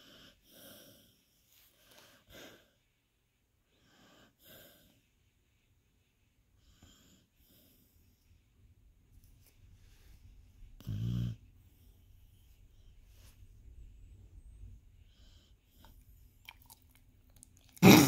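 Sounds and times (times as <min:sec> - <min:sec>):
dog snoring: 0:10.8 - 0:11.5.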